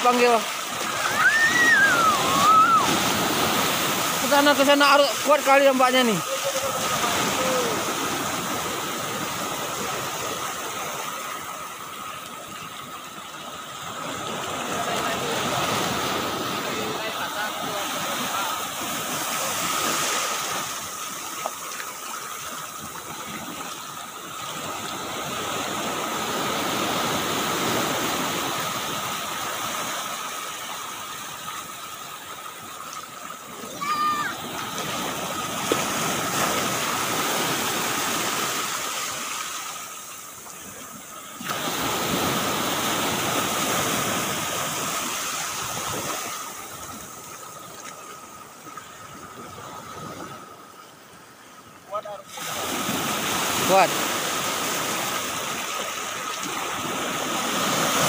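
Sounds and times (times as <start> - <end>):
small waves breaking on beach: 0.0 - 58.0.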